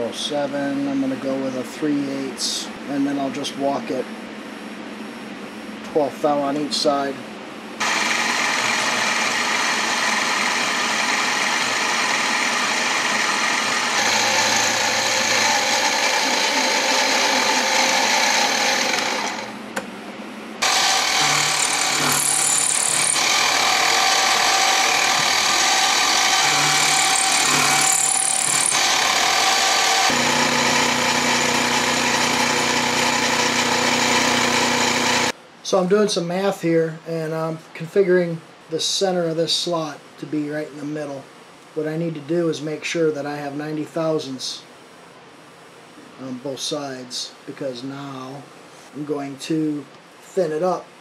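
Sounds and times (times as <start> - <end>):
end mill rasping through steel: 7.8 - 19.5, 20.6 - 35.3
mill motor whine: 7.8 - 19.9, 20.6 - 35.3.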